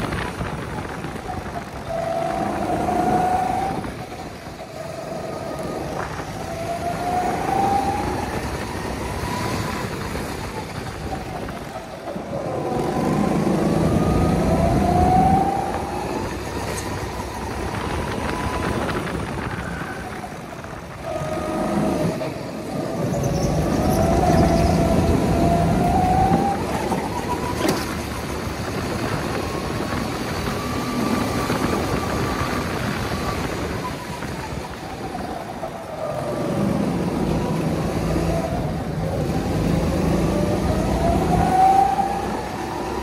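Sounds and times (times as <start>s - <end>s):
go-kart engine accelerating: 0.0s - 43.0s.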